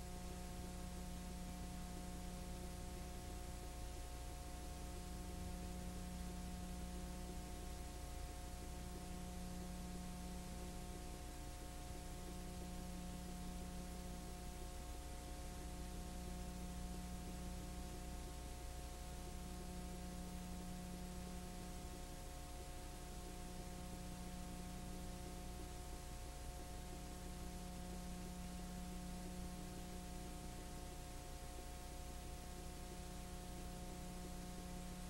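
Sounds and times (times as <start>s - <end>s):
electrical hum and hiss: 0.0s - 35.0s.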